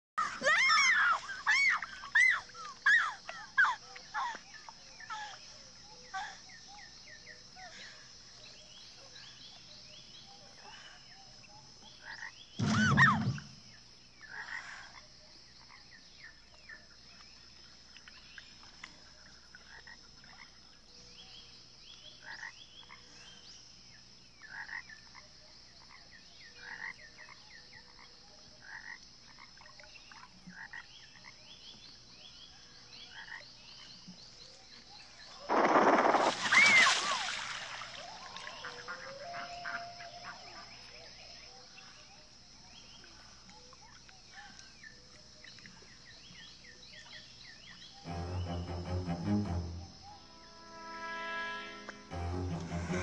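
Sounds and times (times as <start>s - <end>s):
frogs croaking: 0.2s - 53.0s
high insect-like hum: 10.8s - 53.0s.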